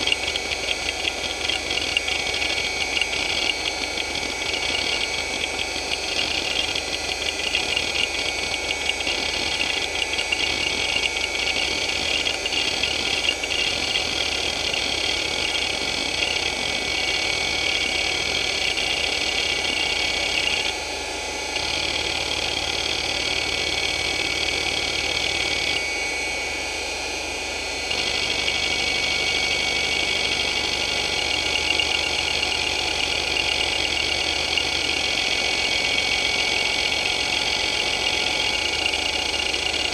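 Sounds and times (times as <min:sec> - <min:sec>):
hard drive heads chattering: 0:00.0 - 0:20.7, 0:29.8 - 0:39.9
high spindle whine: 0:00.0 - 0:39.9.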